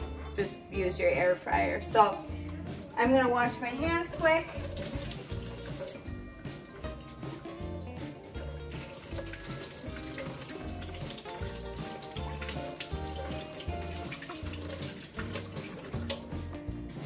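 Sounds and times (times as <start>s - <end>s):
background music with beat: 0.0s - 17.0s
faucet running into metal sink: 3.9s - 17.0s
hands washing under water: 4.0s - 17.0s.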